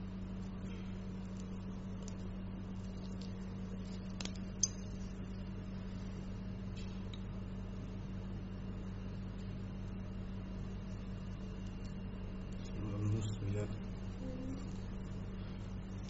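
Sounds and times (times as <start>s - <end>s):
low hum of equipment: 0.0s - 16.0s.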